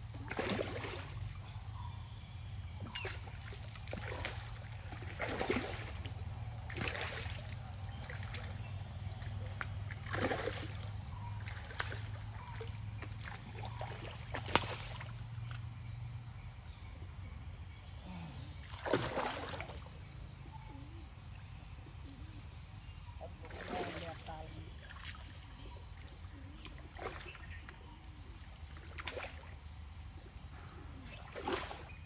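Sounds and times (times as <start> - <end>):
fish splashing at water surface: 3.4 - 8.6, 9.5 - 12.6, 13.2 - 15.2, 18.6 - 19.9, 31.3 - 32.0.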